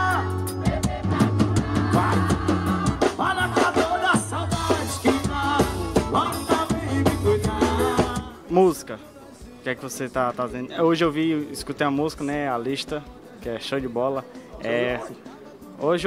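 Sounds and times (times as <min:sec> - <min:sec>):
drum kit beating: 0:00.0 - 0:08.8
live band playing: 0:00.0 - 0:16.0
man singing into a microphone: 0:03.2 - 0:10.1.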